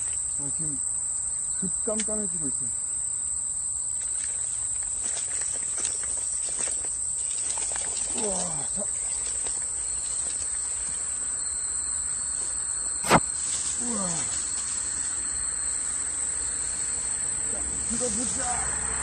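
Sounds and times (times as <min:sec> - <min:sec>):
crickets chirping: 0:00.0 - 0:19.0
person exclaiming: 0:08.1 - 0:08.9, 0:13.8 - 0:14.4.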